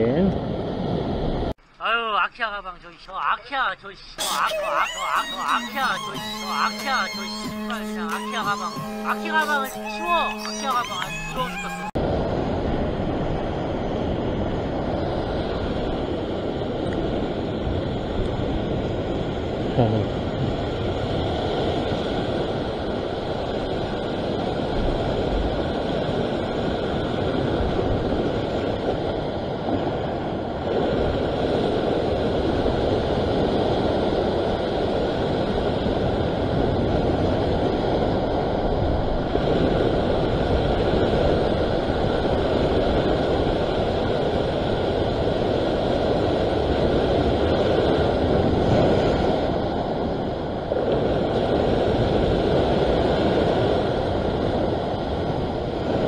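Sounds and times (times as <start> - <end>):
wind buffeting microphone: 11.9 - 56.0
ocean surf washing on rocks: 12.0 - 56.0.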